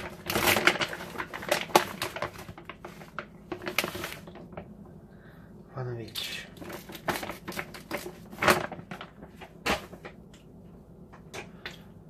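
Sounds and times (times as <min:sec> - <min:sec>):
bag crinkling and rustling: 0:00.0 - 0:04.7, 0:06.5 - 0:10.2.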